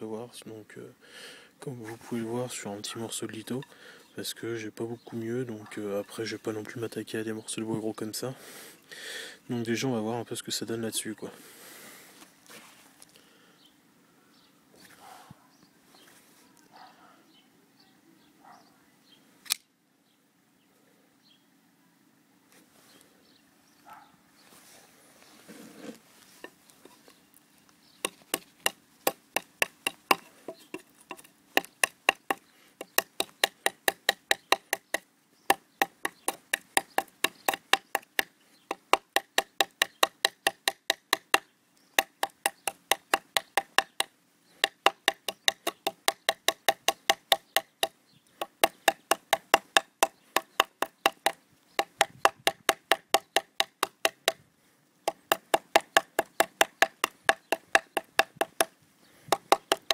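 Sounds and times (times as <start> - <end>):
knife chopping into wood: 28.0 - 41.4, 42.0 - 54.4, 55.1 - 58.7, 59.3 - 59.9.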